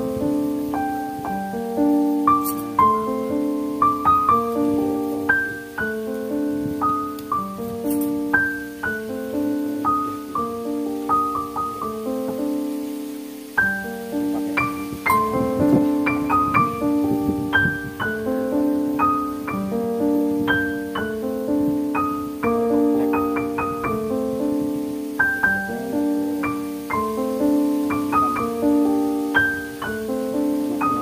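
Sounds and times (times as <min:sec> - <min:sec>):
gentle piano music: 0:00.0 - 0:31.0.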